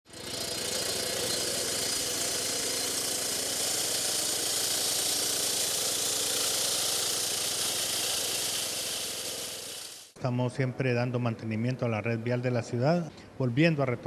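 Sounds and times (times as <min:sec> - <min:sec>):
concrete saw engine humming: 0:00.1 - 0:10.2.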